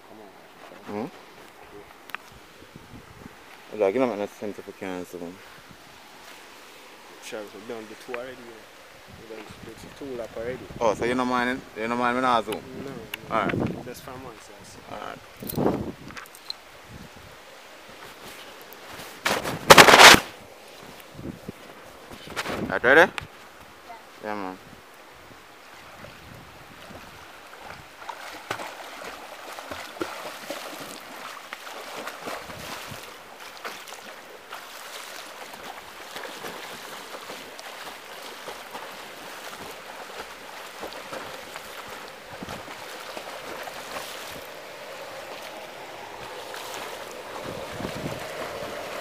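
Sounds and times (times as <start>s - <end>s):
swimmer splashing water: 17.7s - 21.0s, 25.6s - 49.0s.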